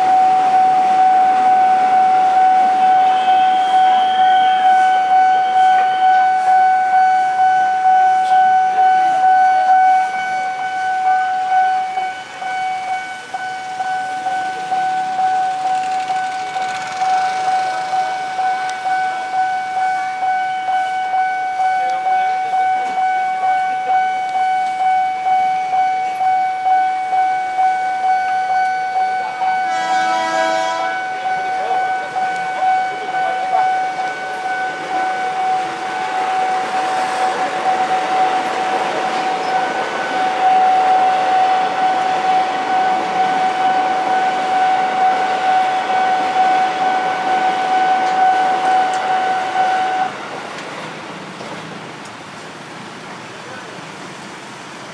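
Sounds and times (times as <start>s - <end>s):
level-crossing warning bell: 0.0s - 54.9s
train horn: 0.2s - 6.5s, 29.4s - 31.8s, 33.9s - 50.2s.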